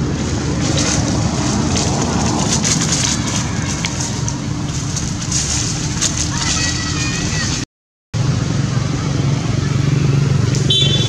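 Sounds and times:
dry leaves crackling and rustling: 0.0s - 7.6s
low rumble: 0.0s - 7.6s.

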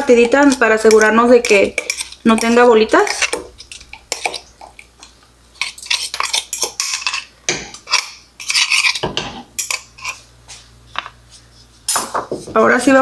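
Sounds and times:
spatula scraping ceramic bowl: 0.0s - 10.3s.

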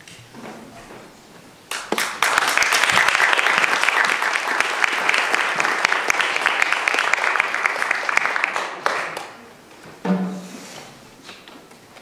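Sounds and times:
audience applauding: 1.7s - 9.5s.

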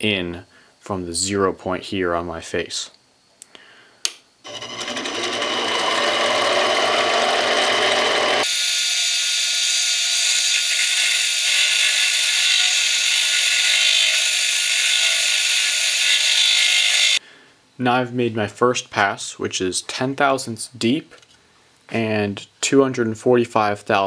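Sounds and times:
lathe running and cutting: 4.5s - 17.2s.

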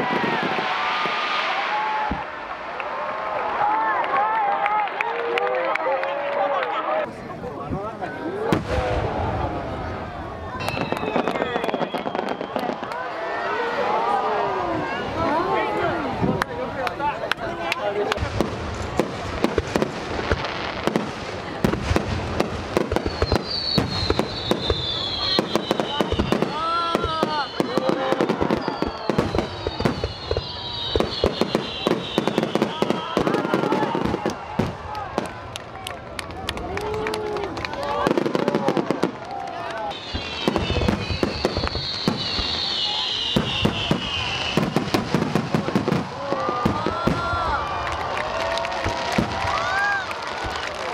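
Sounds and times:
falling firework whistle: 0.0s - 2.9s, 10.6s - 13.1s, 22.0s - 34.8s, 39.9s - 50.9s
fireworks bursting: 0.0s - 3.6s, 7.7s - 13.2s, 16.1s - 50.9s.

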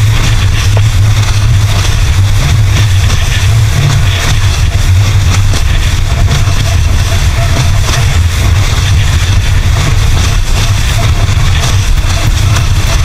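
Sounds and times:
outboard motor drone: 0.0s - 13.0s.

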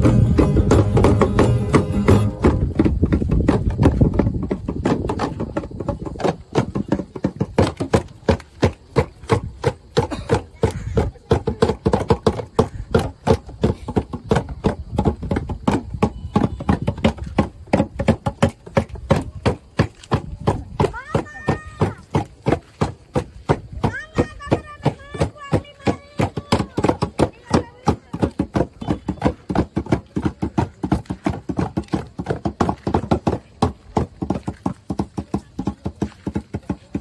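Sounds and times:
hand drums beating: 0.0s - 37.0s
voices: 5.2s - 15.0s, 18.8s - 32.2s.

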